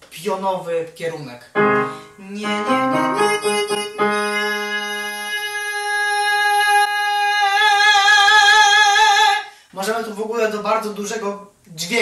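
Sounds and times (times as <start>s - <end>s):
digital piano chords: 1.6s - 6.4s
man singing long high note: 2.2s - 9.5s.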